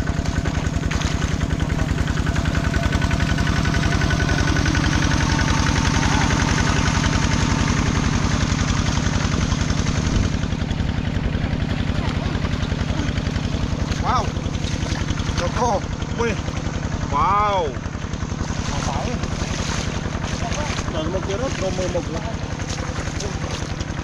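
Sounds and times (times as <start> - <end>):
engine running steadily: 0.0 - 24.0.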